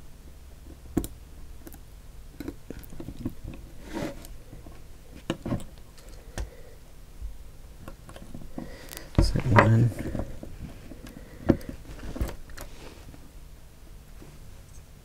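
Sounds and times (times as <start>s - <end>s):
rustle of handling: 8.2s - 13.3s.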